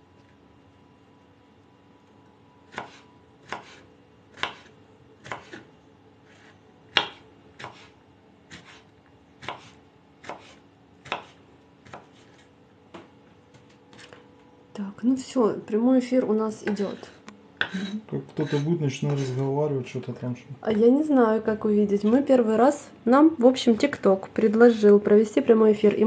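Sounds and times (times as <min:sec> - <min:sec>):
knife chopping on wooden board: 0:02.7 - 0:05.7, 0:06.3 - 0:14.2, 0:16.6 - 0:19.3.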